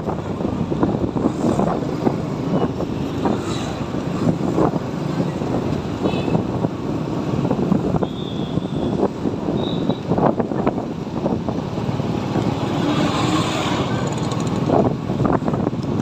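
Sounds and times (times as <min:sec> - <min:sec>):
surrounding motorbikes and cars: 0:00.0 - 0:16.0
wind rushing over microphone: 0:00.0 - 0:16.0
motor scooter engine: 0:11.7 - 0:14.7.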